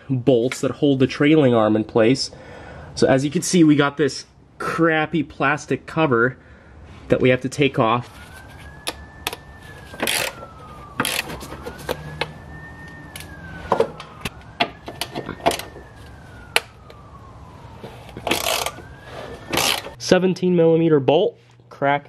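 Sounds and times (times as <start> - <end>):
distant siren wailing: 6.4 - 20.1
hand tool clicking on plastic: 8.8 - 9.4.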